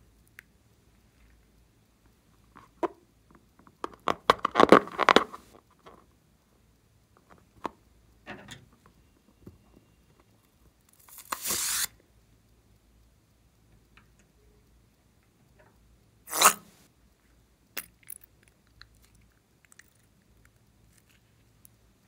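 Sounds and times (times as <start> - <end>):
slime squirting hiss: 11.2 - 11.9
balloon rubbing and squeaking: 16.3 - 16.6.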